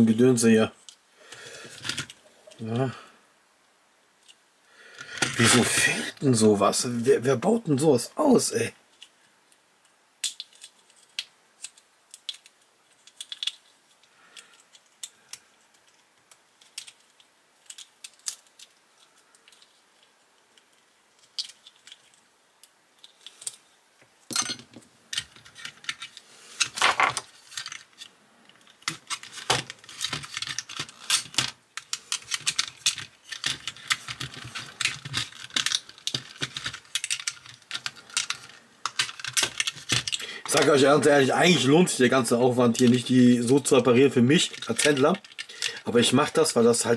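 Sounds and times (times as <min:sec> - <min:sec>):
small parts clicking and rattling: 0:00.8 - 0:02.9, 0:04.2 - 0:05.6, 0:08.9 - 0:46.9.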